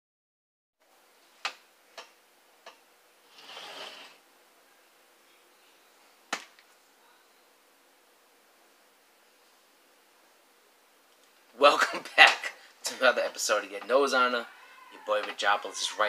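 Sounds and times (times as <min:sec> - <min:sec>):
soft hissing rustle: 0:03.2 - 0:07.0.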